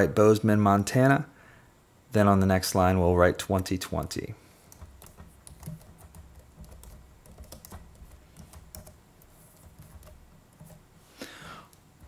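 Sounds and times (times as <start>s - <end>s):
low steady hum: 0.0s - 12.0s
computer keyboard typing: 4.7s - 10.9s.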